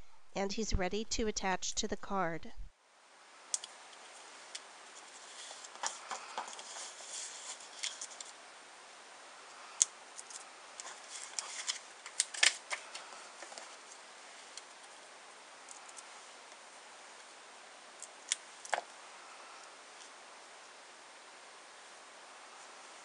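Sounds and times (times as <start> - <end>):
paper and card rustling: 5.0 - 8.4, 10.2 - 13.8.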